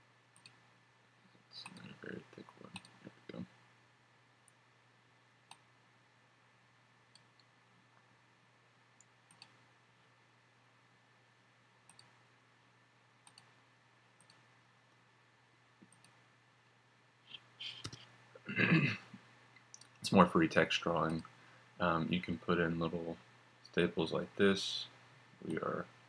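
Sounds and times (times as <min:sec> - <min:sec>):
low background hum: 0:00.0 - 0:26.0
computer mouse clicks: 0:00.4 - 0:00.6, 0:02.7 - 0:03.2, 0:07.1 - 0:07.5, 0:09.0 - 0:09.6, 0:11.9 - 0:12.2, 0:13.2 - 0:13.6, 0:14.2 - 0:14.5, 0:15.8 - 0:16.2, 0:17.7 - 0:18.1.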